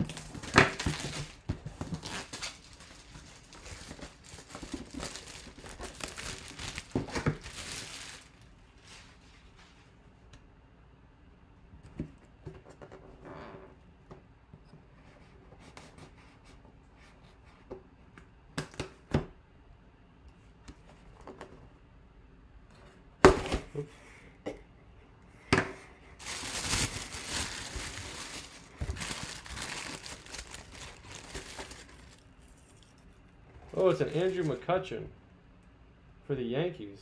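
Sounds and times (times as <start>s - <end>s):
tissue paper rustling: 0.0s - 10.0s, 26.2s - 32.8s
cardboard box being handled: 0.1s - 8.3s, 26.2s - 32.2s.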